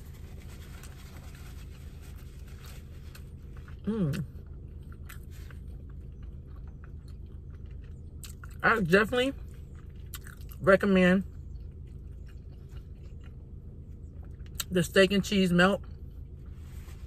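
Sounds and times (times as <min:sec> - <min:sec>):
steady low hum: 0:00.0 - 0:17.0
person chewing: 0:00.1 - 0:10.6, 0:11.3 - 0:14.7.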